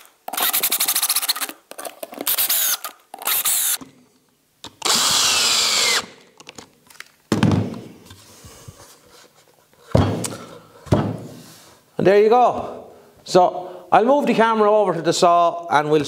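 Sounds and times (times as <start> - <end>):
drill driving screws into wood: 0.0 - 1.6, 2.2 - 3.8, 4.7 - 6.2
thump: 7.3 - 7.8, 9.9 - 11.4.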